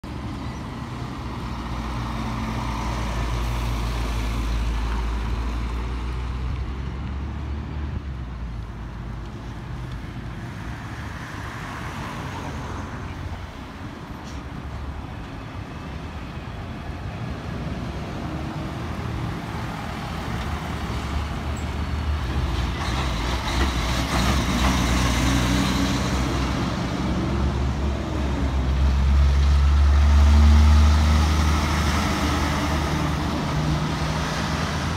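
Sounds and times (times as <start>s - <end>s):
diesel truck engines rumbling: 0.0s - 34.9s.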